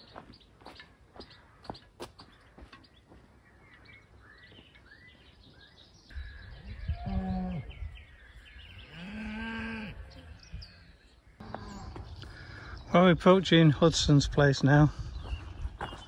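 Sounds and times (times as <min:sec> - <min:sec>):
livestock calls: 0:06.4 - 0:08.0, 0:08.8 - 0:12.4.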